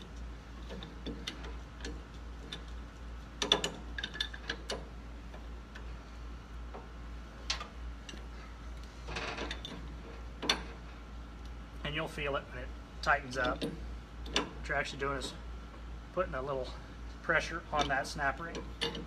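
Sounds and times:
wrench scraping metal: 0.0s - 4.9s
pipe wrench metallic clicks: 0.1s - 5.9s, 6.7s - 8.3s, 13.2s - 15.4s, 17.5s - 19.0s.

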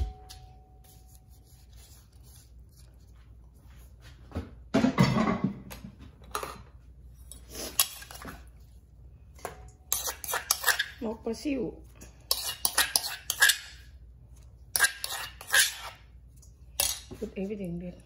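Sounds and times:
metal spoon scraping stone mortar: 9.9s - 11.0s, 12.2s - 13.9s, 14.7s - 16.0s.

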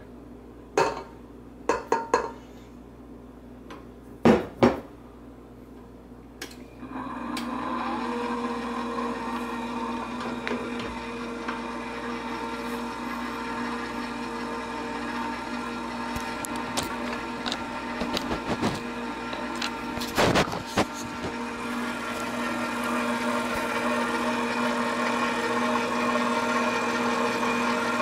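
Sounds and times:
stand mixer motor humming: 6.8s - 28.0s.

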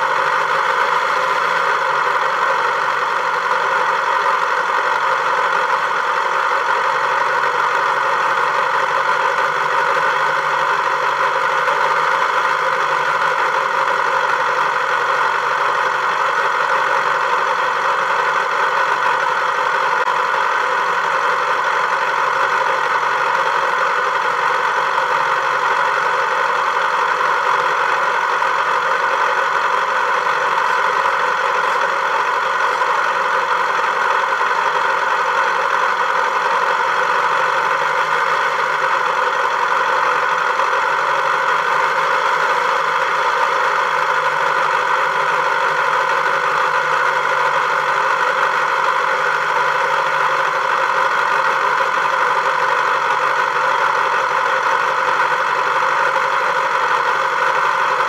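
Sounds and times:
engine running steadily: 0.0s - 58.0s.

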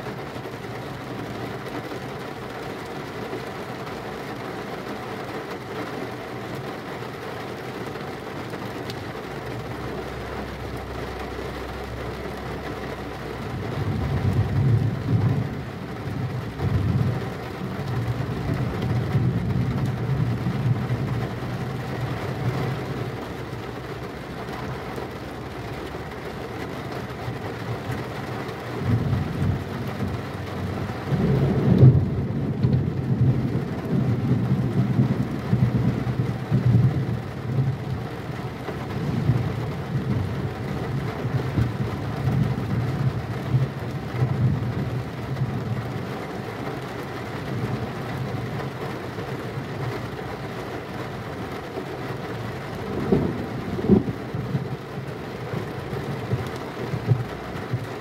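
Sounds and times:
heavy rain: 0.0s - 58.0s
rolling thunder: 28.8s - 37.7s, 52.9s - 54.5s.

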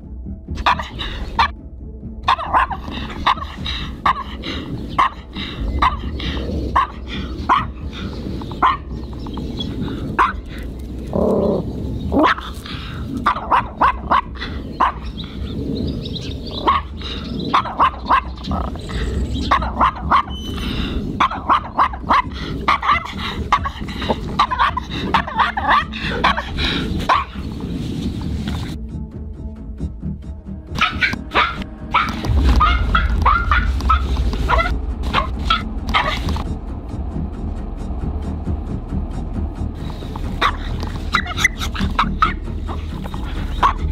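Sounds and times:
small dog barking sharply: 2.3s - 3.4s, 30.8s - 36.2s.

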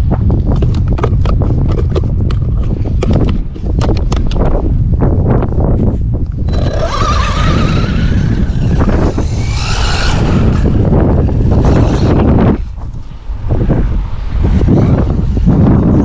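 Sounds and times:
tyre and ground noise: 0.0s - 16.0s
wind noise on microphone: 0.0s - 16.0s
electric motor whine: 6.4s - 16.0s.

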